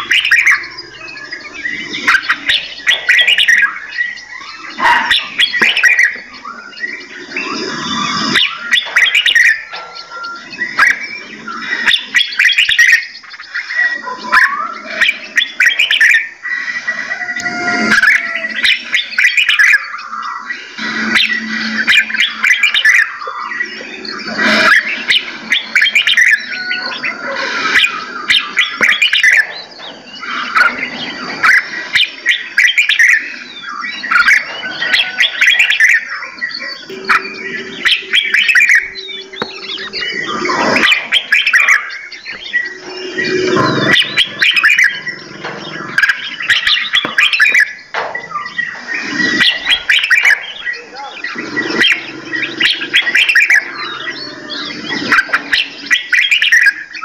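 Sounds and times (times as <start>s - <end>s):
low held bird notes: 0.0s - 57.0s
songbirds chirping and singing: 0.0s - 57.0s.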